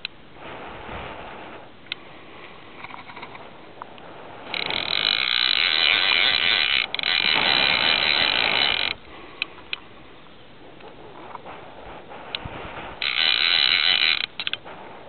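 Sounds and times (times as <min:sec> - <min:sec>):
sharp ticks: 0:02.8 - 0:09.9, 0:12.3 - 0:14.8
fishing reel drag buzzing: 0:04.5 - 0:09.5, 0:13.0 - 0:14.6.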